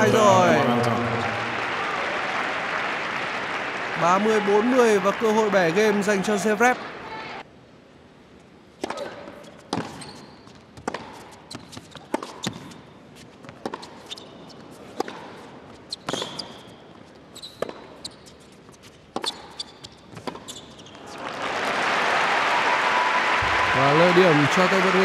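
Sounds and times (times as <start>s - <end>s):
crowd applause: 0.0s - 7.0s, 21.0s - 25.0s
sneaker squeaks: 8.8s - 12.8s, 13.7s - 15.2s, 15.8s - 21.2s
racquets striking tennis ball: 10.8s - 12.8s.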